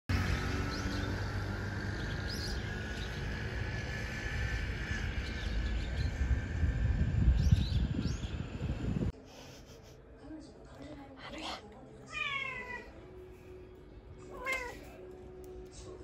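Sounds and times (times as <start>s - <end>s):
low rumble: 1.2s - 9.1s.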